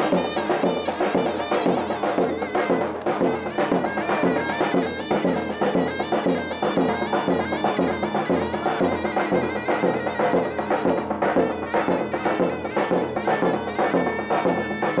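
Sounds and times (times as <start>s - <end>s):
shrill reed melody: 0.0s - 15.0s
steady drum beat: 0.0s - 15.0s.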